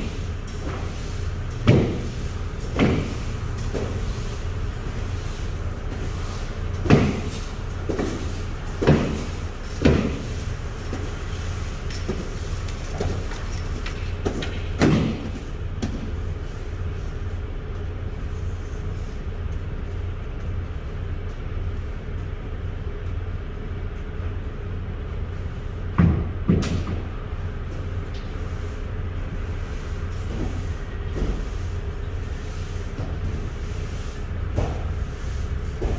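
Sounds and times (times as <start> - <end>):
broom knocks in metal trailer: 0.0 - 4.2, 5.9 - 11.4, 12.0 - 16.1, 34.5 - 35.9
low machine hum: 0.0 - 35.9.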